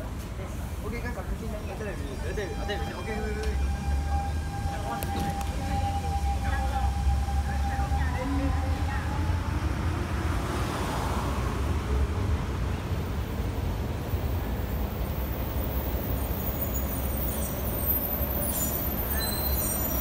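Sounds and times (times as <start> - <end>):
road traffic rumble: 0.0 - 20.0
train pulling away: 1.6 - 10.6
bus passing with hiss: 3.4 - 20.0.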